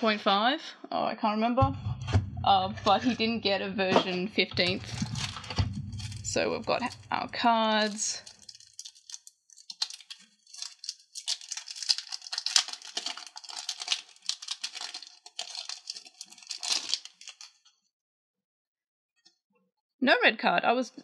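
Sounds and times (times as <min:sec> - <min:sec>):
plastic packaging crinkling: 0:04.7 - 0:17.6.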